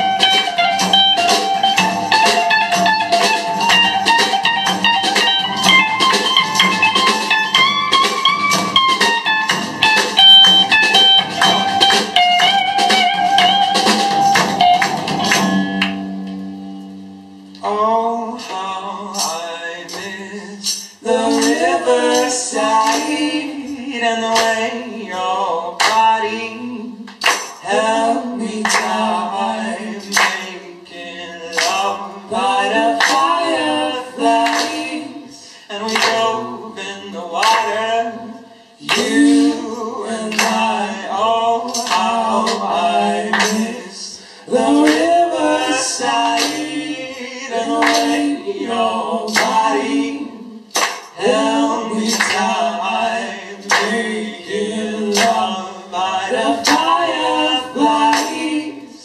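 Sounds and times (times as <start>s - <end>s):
hand claps: 0.1s - 16.4s, 20.7s - 23.3s, 25.8s - 26.1s, 27.1s - 27.7s, 28.6s - 29.1s, 30.0s - 30.6s, 31.5s - 32.0s, 32.8s - 33.5s, 34.2s - 35.0s, 35.8s - 36.4s, 37.4s - 37.8s, 38.8s - 39.3s, 40.3s - 40.8s, 41.7s - 43.8s, 44.7s - 46.9s, 47.6s - 48.4s, 49.3s - 50.0s, 50.7s - 52.7s, 53.6s - 54.2s, 55.1s - 55.6s, 56.6s - 57.1s, 57.9s - 58.6s
people singing a cappella: 17.6s - 59.0s.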